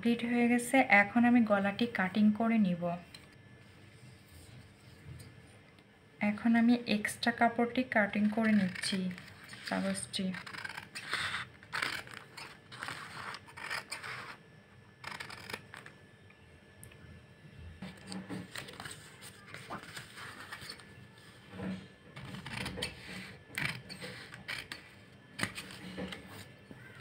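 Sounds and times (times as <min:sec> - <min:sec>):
scissors cutting stiff paper: 0:08.3 - 0:14.4, 0:15.0 - 0:16.0, 0:22.2 - 0:27.0.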